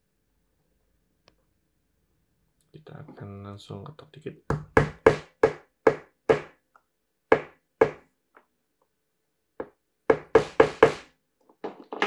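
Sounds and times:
sharp knocks on wooden block: 0:04.5 - 0:06.6, 0:07.3 - 0:08.0, 0:09.6 - 0:11.1.

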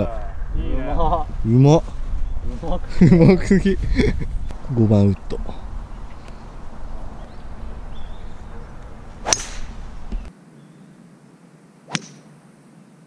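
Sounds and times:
golf club striking ball: 0:08.1 - 0:10.3.

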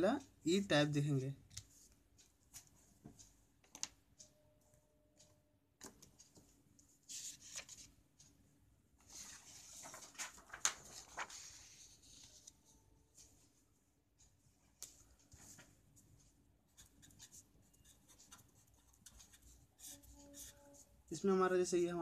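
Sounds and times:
paper rustling and crackling: 0:09.0 - 0:12.5.

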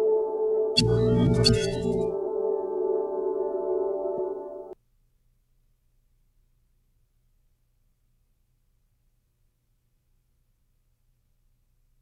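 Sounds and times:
ambient music sustained chord: 0:00.0 - 0:04.8.

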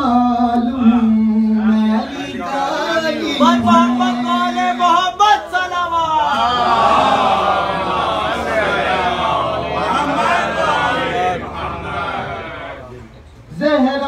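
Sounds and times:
man chanting: 0:00.0 - 0:05.5.

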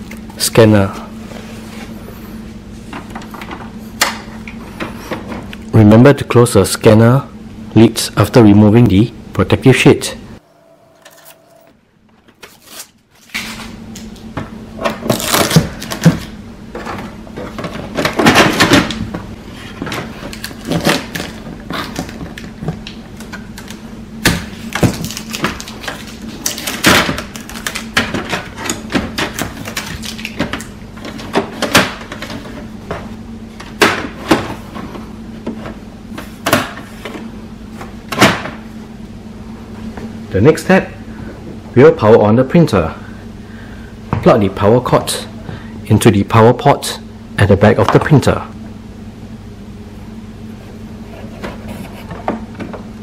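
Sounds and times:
steady low hum: 0:00.0 - 0:53.0
tape peeling off plastic: 0:12.4 - 0:14.1, 0:15.0 - 0:16.3, 0:24.7 - 0:28.0.

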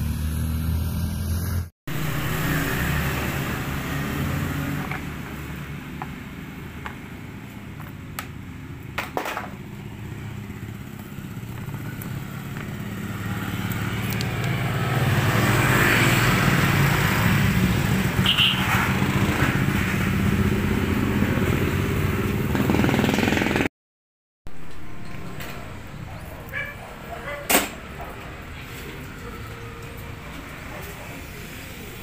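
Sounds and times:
motorbike engine idling: 0:09.7 - 0:14.2.

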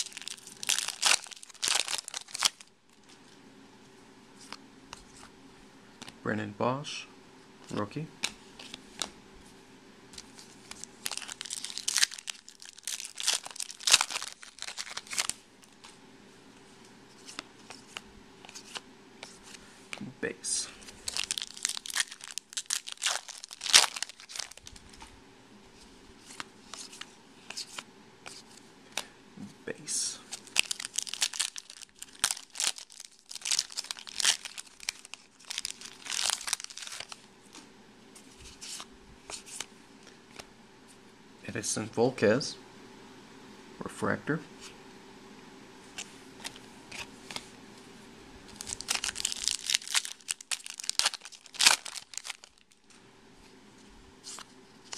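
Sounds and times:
foil wrapper crinkling and tearing: 0:00.0 - 0:03.0, 0:10.2 - 0:15.9, 0:21.0 - 0:25.1, 0:30.3 - 0:37.3, 0:48.5 - 0:52.9.

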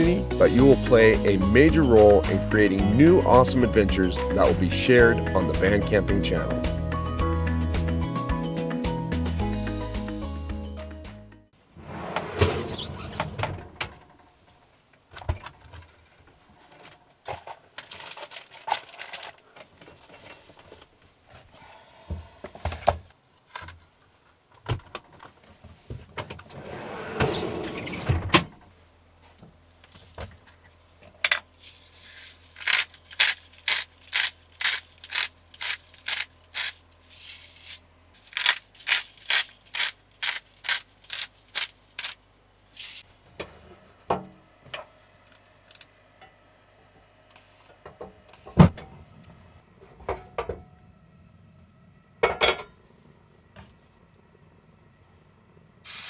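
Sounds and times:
steady low hum: 0:41.8 - 0:55.9.

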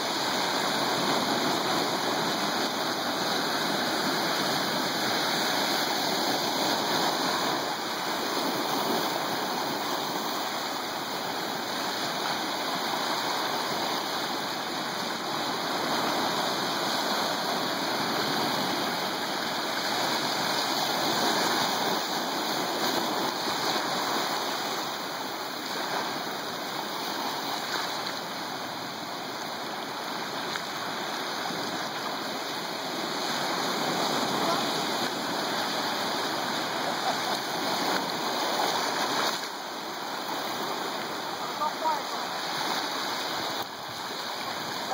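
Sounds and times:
ocean waves washing: 0:00.0 - 0:44.9.

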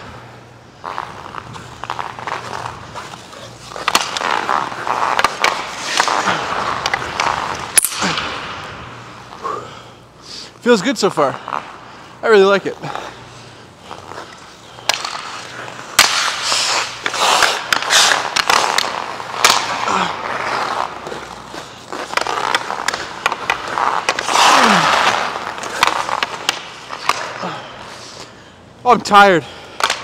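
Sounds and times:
skates scraping across ice: 0:00.0 - 0:30.0
hockey stick clacking on puck: 0:00.9 - 0:08.3, 0:14.0 - 0:27.5, 0:29.8 - 0:30.0.

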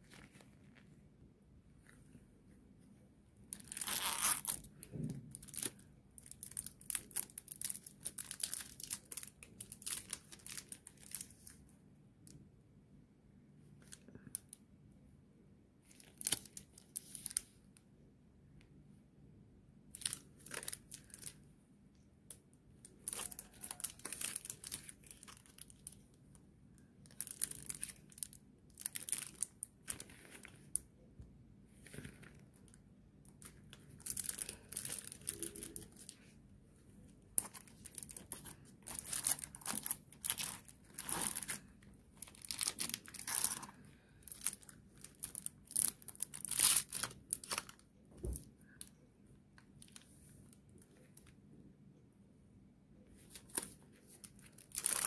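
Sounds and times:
plastic sleeves crinkling: 0:00.0 - 0:01.0, 0:03.5 - 0:11.6, 0:15.8 - 0:17.6, 0:19.9 - 0:21.5, 0:22.3 - 0:26.4, 0:27.0 - 0:30.9, 0:31.7 - 0:48.9, 0:53.2 - 0:55.0.

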